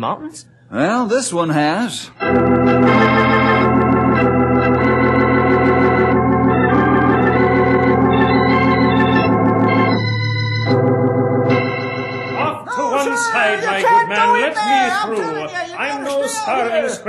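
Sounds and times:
organ chords: 2.1s - 15.8s.

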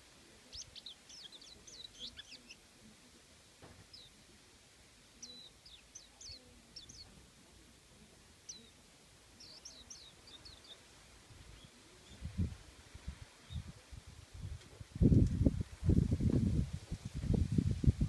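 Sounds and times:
bird chirping: 0.3s - 2.7s, 3.8s - 4.3s, 5.1s - 7.2s, 8.4s - 10.9s.

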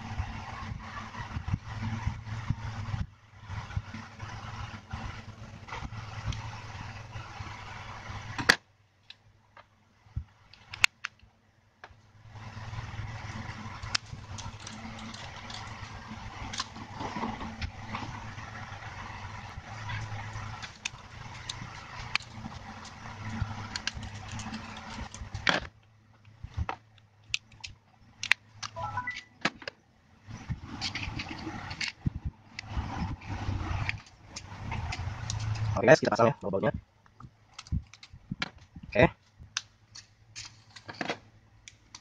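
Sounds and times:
steady background noise: 0.0s - 42.0s
small plastic clicks: 20.6s - 29.8s
rising electronic beeps: 28.8s - 29.4s.

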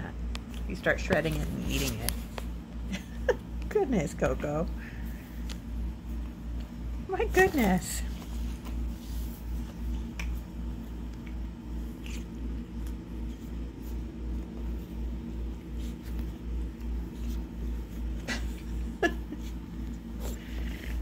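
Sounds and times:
cat purring: 20.2s - 21.0s.

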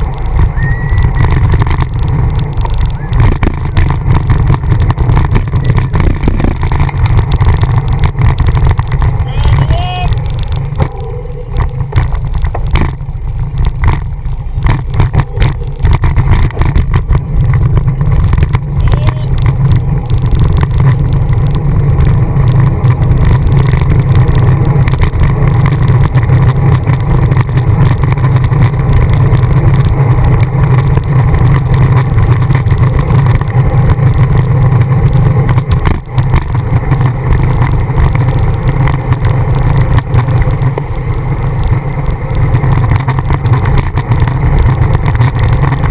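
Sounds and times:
wind buffeting microphone: 0.0s - 45.9s
knocks and rattles: 11.6s - 18.8s.

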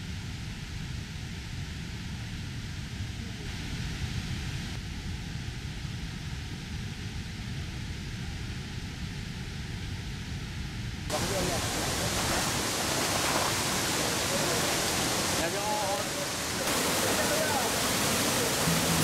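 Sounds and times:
waterfalls pouring into a pool: 11.1s - 19.0s.

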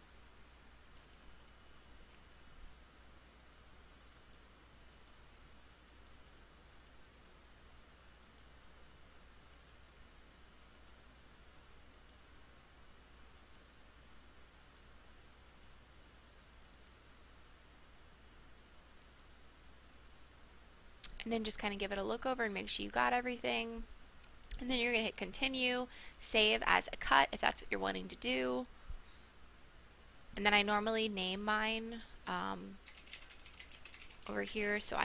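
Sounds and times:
low steady hum: 0.0s - 35.0s
computer mouse clicks: 0.6s - 2.2s, 4.1s - 5.2s, 5.8s - 7.0s, 8.2s - 8.5s, 9.5s - 9.8s, 10.7s - 11.0s, 11.9s - 12.2s, 13.3s - 13.7s, 14.6s - 15.8s, 16.7s - 17.0s, 19.0s - 19.3s, 32.8s - 34.8s.

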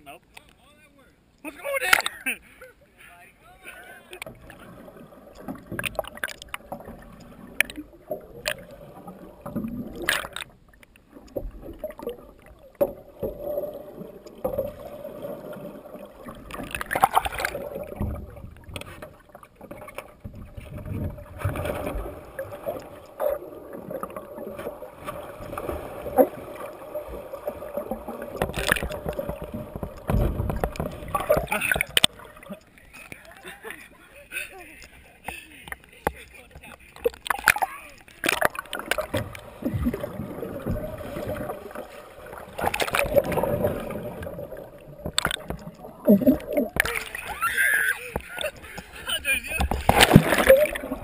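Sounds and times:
water sloshing and splashing: 4.0s - 51.0s
large splash: 49.8s - 51.0s.

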